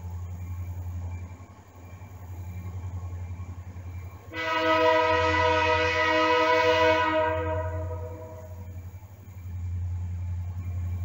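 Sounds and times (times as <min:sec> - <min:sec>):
locomotive air horn blast: 0:04.3 - 0:08.7.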